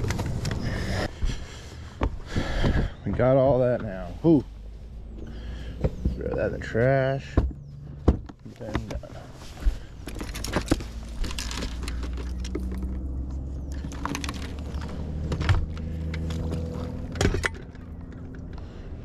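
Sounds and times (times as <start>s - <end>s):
gear clicks and knocks on deck: 5.8s - 18.8s.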